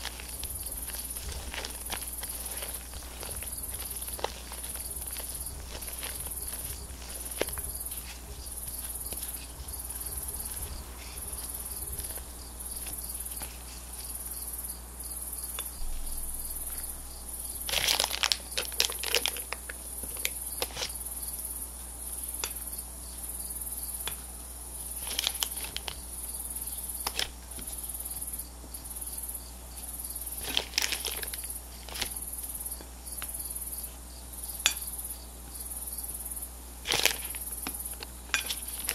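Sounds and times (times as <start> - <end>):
plastic piping bag crinkling: 0.0 - 14.2, 15.8 - 21.0, 25.0 - 26.1, 27.0 - 27.7, 30.4 - 32.4, 36.8 - 38.9
spatula scraping: 0.0 - 14.2
high insect-like chirp: 0.0 - 38.9.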